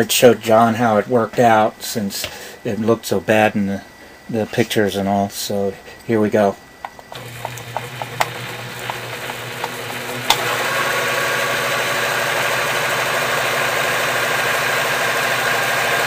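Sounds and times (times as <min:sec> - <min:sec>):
sharp clicks: 0:06.8 - 0:10.5
sewing machine motor running: 0:07.1 - 0:16.0.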